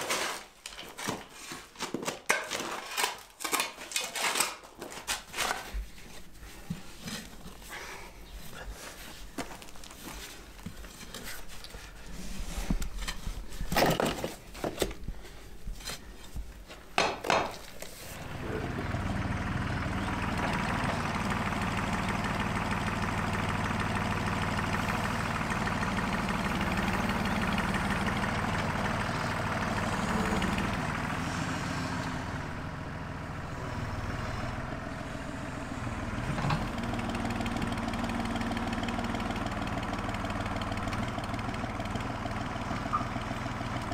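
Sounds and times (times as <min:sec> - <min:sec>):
lawn mower engine running: 0:18.1 - 0:43.9.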